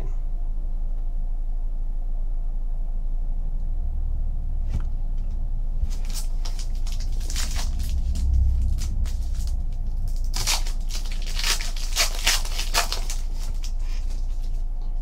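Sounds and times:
steady low hum: 0:00.0 - 0:15.0
foil wrapper crinkling: 0:05.9 - 0:14.7.

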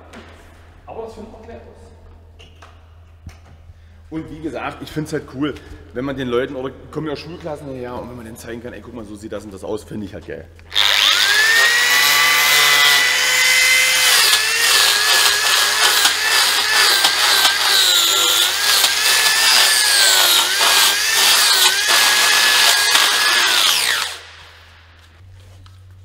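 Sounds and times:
power carving tool whining: 0:10.7 - 0:24.8.

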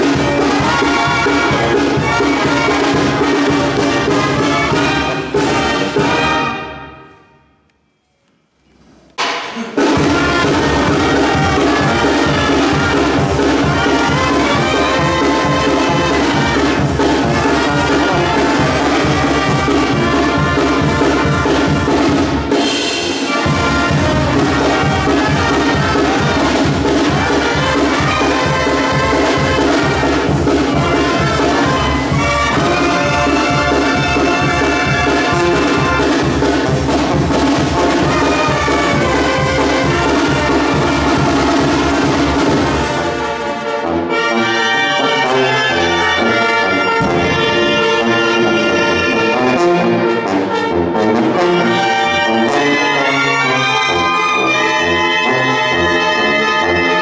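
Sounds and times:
snare drum and cymbal beat: 0:00.0 - 0:06.5, 0:09.2 - 0:43.4
trumpets playing melody: 0:00.0 - 0:07.6, 0:09.6 - 0:57.0.

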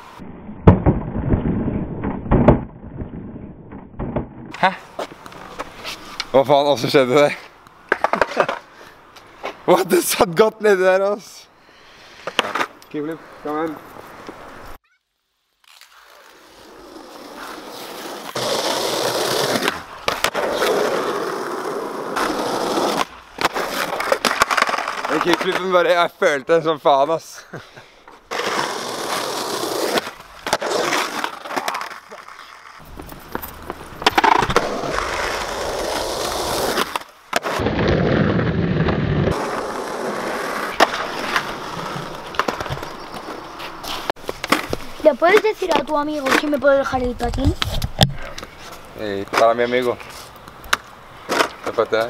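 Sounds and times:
skateboard wheels rolling on concrete: 0:00.0 - 0:14.8, 0:15.6 - 0:52.0
skateboard landing clacks: 0:33.1 - 0:35.2, 0:40.7 - 0:43.4.

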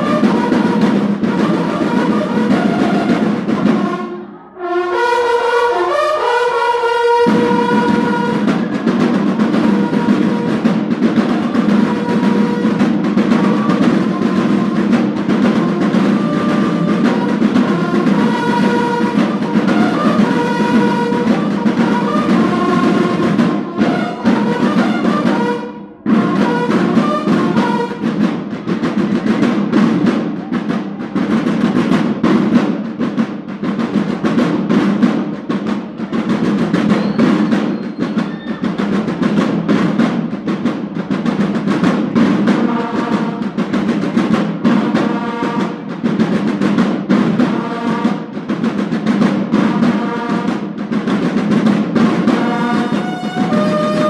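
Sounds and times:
marching drums: 0:00.0 - 0:04.3, 0:05.0 - 0:54.0
bugles sounding held notes: 0:00.0 - 0:28.3, 0:52.3 - 0:54.0.

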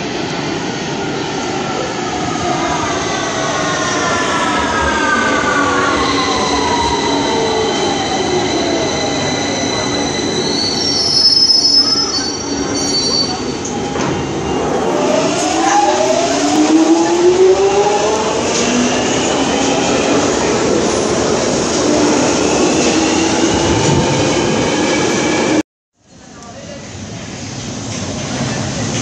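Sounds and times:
train wheel squeal: 0:06.1 - 0:14.7.

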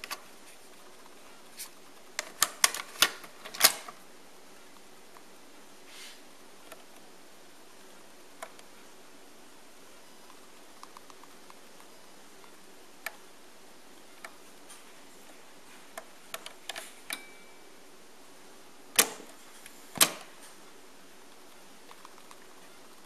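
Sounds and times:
loud cassette deck clacks: 0:19.0 - 0:19.4, 0:20.0 - 0:20.3.

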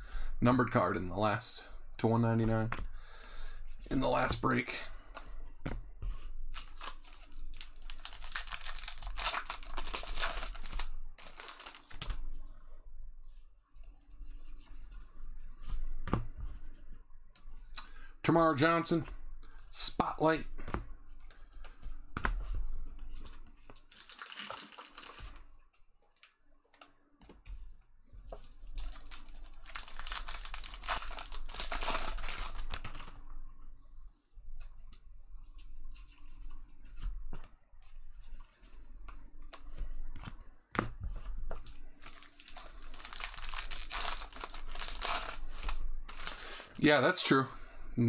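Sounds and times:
card pack wrappers tearing: 0:06.5 - 0:12.2, 0:23.8 - 0:25.4, 0:28.6 - 0:33.2, 0:42.0 - 0:46.7.

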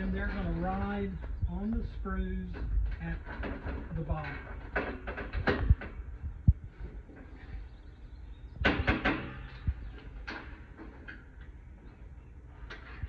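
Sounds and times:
metal panels clattering and knocking: 0:00.0 - 0:07.8, 0:08.5 - 0:11.7
low thud of metal panel: 0:08.6 - 0:10.6.

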